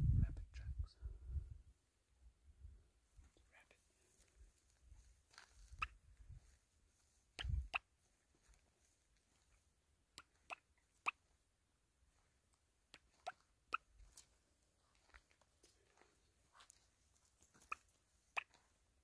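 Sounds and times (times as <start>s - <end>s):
footsteps crunching on dirt: 4.0s - 9.6s, 13.0s - 18.8s.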